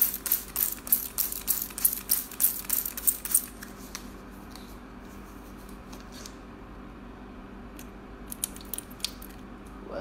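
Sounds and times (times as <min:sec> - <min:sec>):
overhead projector humming: 0:00.0 - 0:10.0.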